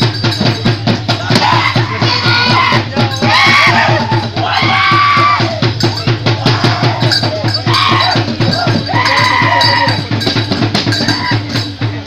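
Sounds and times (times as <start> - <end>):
drums beaten in fast rhythm: 0.0 - 12.0
long shouted calls: 1.2 - 10.0.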